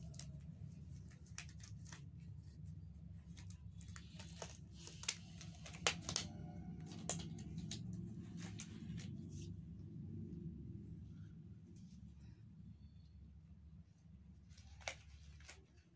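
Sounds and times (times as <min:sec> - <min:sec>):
paper wrapper crinkling: 0:00.0 - 0:09.5, 0:14.4 - 0:15.9
latex gloves snapping: 0:03.4 - 0:09.1.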